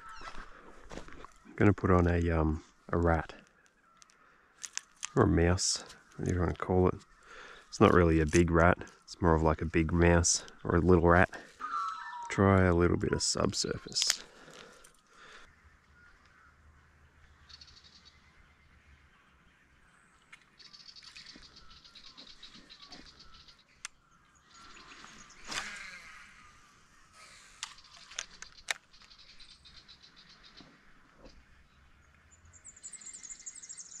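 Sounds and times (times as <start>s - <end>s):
birds chirping faintly: 0.0s - 34.0s
sharp clicks: 27.6s - 29.2s.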